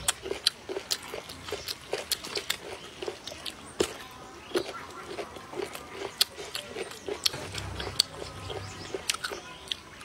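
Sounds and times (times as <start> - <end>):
person chewing food: 0.0 - 10.0.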